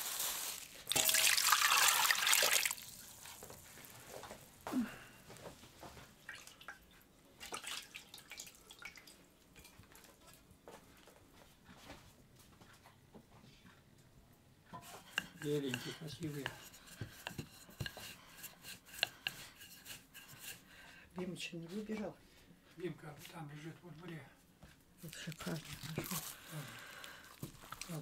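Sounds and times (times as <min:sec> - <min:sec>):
water pouring: 0:00.1 - 0:03.6, 0:07.4 - 0:09.2
dough kneaded in metal bowl: 0:14.7 - 0:20.7, 0:25.0 - 0:28.0.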